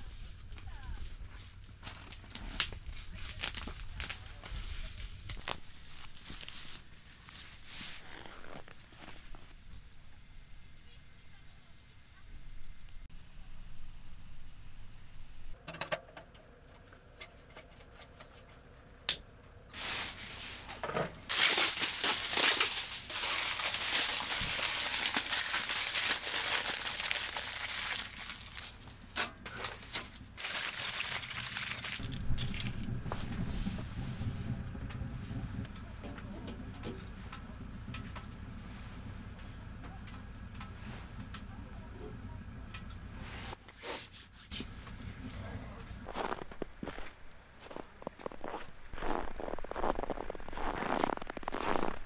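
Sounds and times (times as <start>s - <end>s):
aluminium foil crinkling: 0.0s - 9.4s, 21.3s - 29.0s, 29.6s - 32.9s
low steady rumble: 0.0s - 43.6s, 44.5s - 52.0s.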